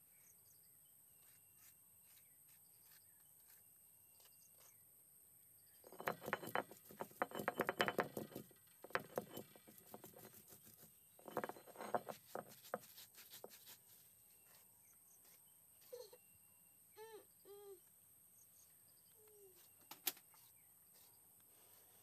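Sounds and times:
grinding stone knocking on rock: 0:05.9 - 0:13.7.

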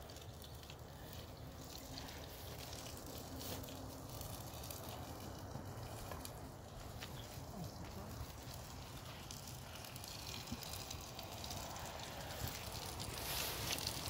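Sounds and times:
fire crackles: 0:00.0 - 0:14.0
oil bubbling and sizzling in a pan: 0:00.0 - 0:14.0.

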